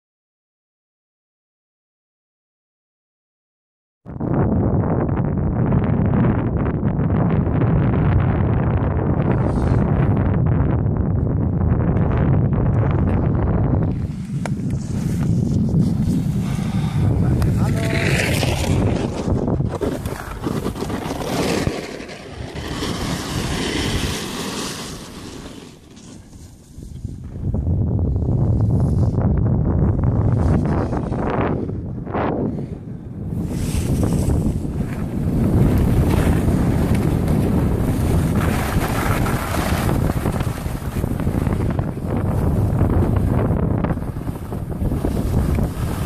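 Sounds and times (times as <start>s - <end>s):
wind buffeting microphone: 4.1s - 24.4s, 26.6s - 46.0s
ski edges scraping snow: 13.8s - 27.2s, 30.2s - 31.6s, 33.4s - 46.0s.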